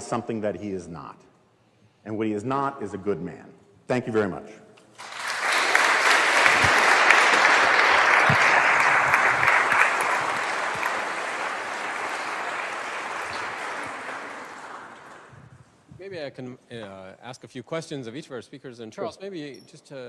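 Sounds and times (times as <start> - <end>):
audience applauding: 5.0 - 15.7.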